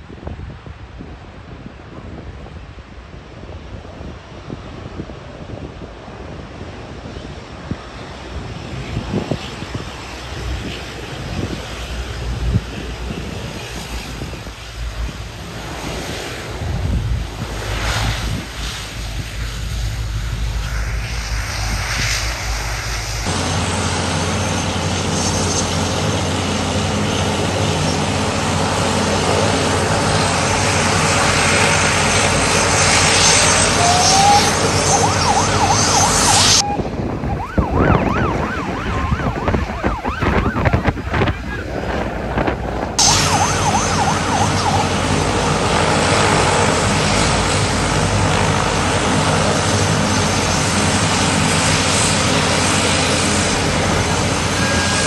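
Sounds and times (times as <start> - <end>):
turboprop engines running: 0.0 - 55.0
water cannons spraying: 43.0 - 45.2.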